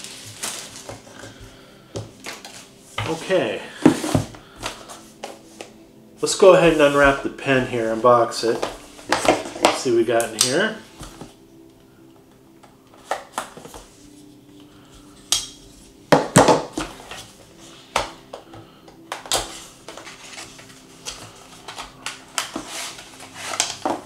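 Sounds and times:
packaging clicks and rustles: 0:17.9 - 0:24.0.

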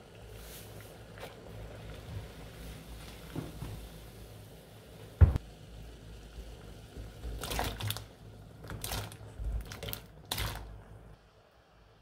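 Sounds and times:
dull thump: 0:05.2 - 0:05.4
vegetables splashing into boiling water: 0:06.5 - 0:10.9.

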